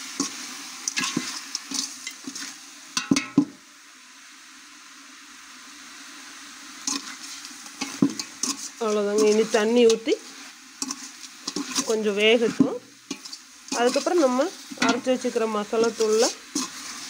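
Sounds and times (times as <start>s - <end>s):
chicken sizzling in a pot: 0.0s - 17.0s
steel spoon scraping a pot: 6.9s - 17.0s.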